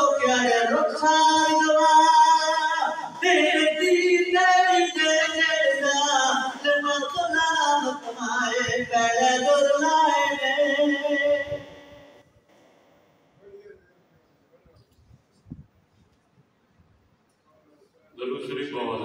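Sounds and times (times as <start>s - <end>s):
man singing melodic chant: 0.0s - 11.9s.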